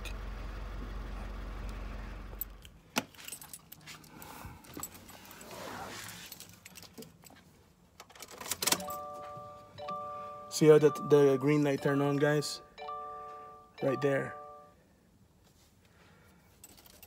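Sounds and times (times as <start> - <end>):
car keys jangling: 2.4 - 7.4, 16.6 - 17.0
low steady hum: 8.8 - 17.0.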